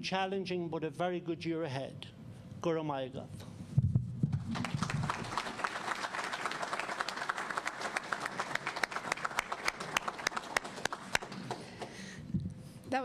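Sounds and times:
audience applauding: 4.4 - 12.1.

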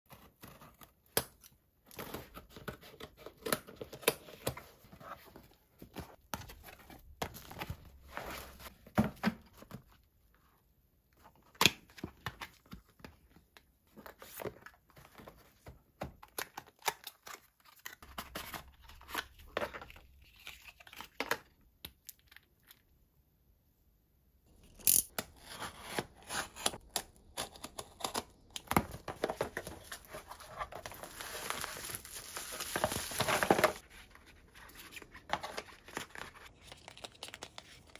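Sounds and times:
packaging rustling and crinkling: 28.7 - 37.9.

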